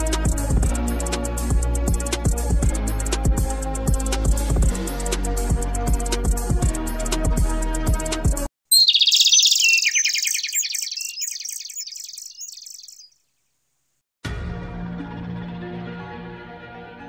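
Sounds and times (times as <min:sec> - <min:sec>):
background music: 0:00.0 - 0:08.4, 0:14.3 - 0:17.0
bird-like chirps trilling: 0:08.7 - 0:13.3.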